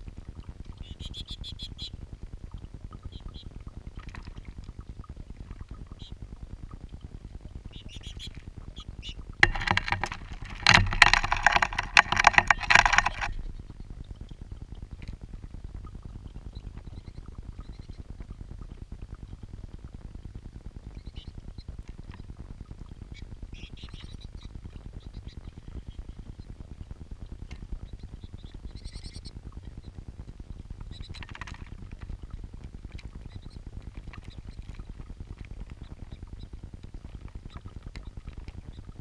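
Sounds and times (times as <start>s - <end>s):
fountain water bubbling: 0.0s - 39.0s
bird splashing in water: 9.4s - 13.4s.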